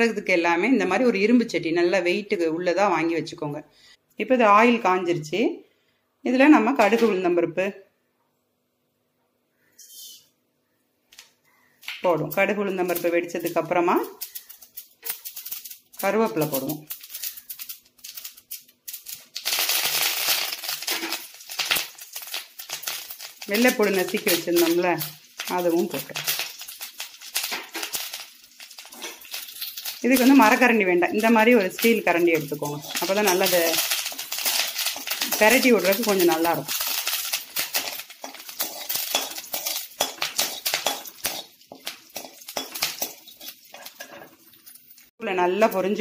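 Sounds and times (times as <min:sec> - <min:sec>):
seeds crackling in hot oil: 0:11.1 - 0:46.0
leaves sizzling and spitting in oil: 0:12.0 - 0:46.0
spoon scraping metal pan: 0:32.6 - 0:44.4.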